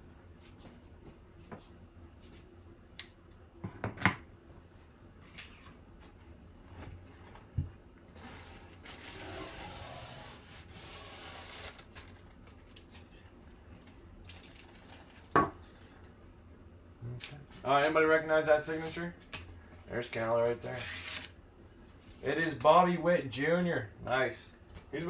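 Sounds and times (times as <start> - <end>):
plastic and foam rustling: 5.2 - 16.1
tape and foam ripping: 8.2 - 13.0, 20.6 - 21.4.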